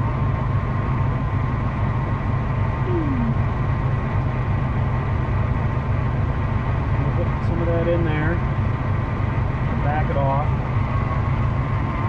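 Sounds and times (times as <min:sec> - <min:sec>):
motorhome engine idling: 0:00.0 - 0:12.0.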